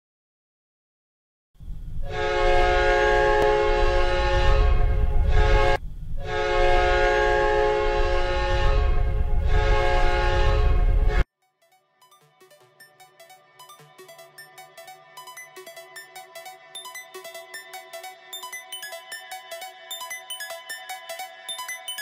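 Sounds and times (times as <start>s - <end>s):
goal horn blasts: 2.1s - 11.2s.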